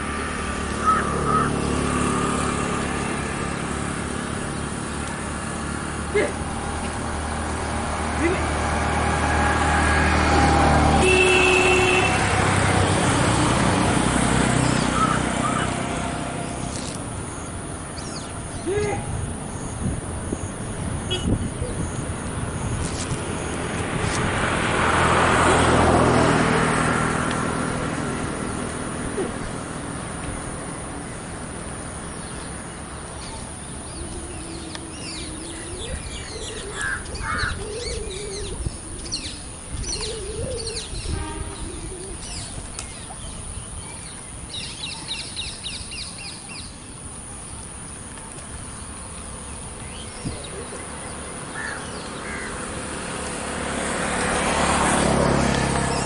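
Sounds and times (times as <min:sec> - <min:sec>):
rushing noise with low hum: 0:00.0 - 0:56.0
wind: 0:00.0 - 0:56.0
birds chirping and calling: 0:00.4 - 0:08.3, 0:14.4 - 0:23.6, 0:31.9 - 0:53.4.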